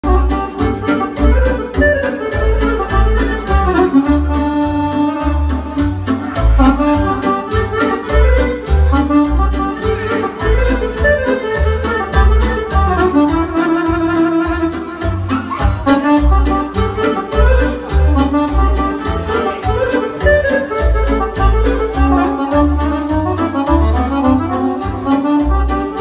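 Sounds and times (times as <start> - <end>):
accordion melody: 0.0 - 26.0
electronic keyboards: 0.0 - 26.0
steady bass beat: 0.0 - 26.0.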